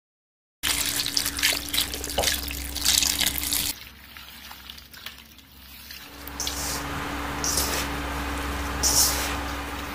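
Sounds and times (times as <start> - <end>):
water pouring into metal basin: 0.6 - 6.8
hands washing mushrooms: 0.6 - 9.9.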